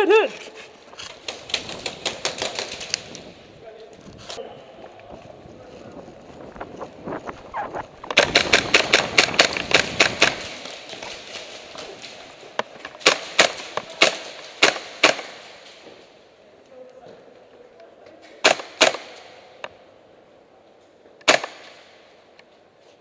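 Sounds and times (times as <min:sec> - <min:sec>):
airsoft gunfire cracks: 0:08.1 - 0:11.1, 0:13.0 - 0:15.7, 0:18.4 - 0:19.3, 0:21.2 - 0:22.0.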